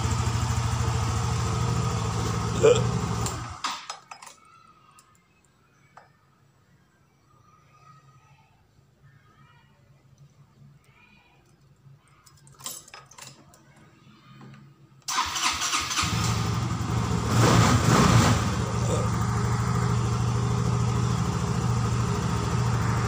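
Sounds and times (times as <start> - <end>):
scooter engine starting and idling: 0.0 - 3.9, 15.1 - 23.0.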